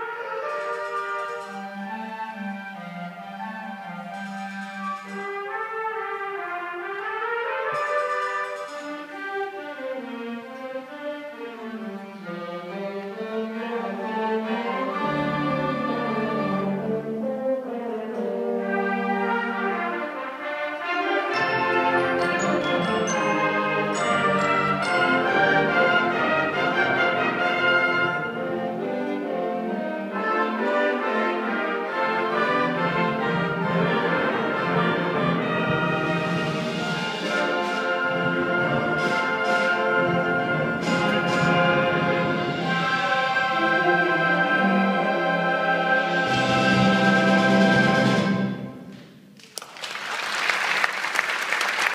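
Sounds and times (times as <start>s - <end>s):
concert band playing: 0.0s - 10.1s, 12.2s - 49.2s.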